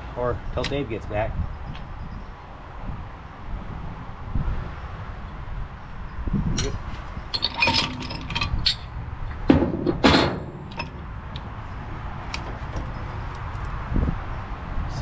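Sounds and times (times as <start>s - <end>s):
metal clicks and clinks: 6.6s - 8.9s.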